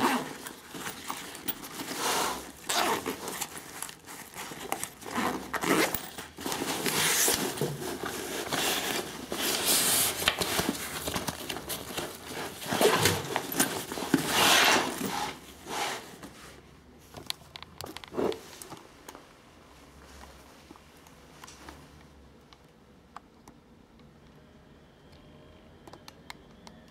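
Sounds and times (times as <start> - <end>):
backpack fabric rustling: 0.0 - 16.6.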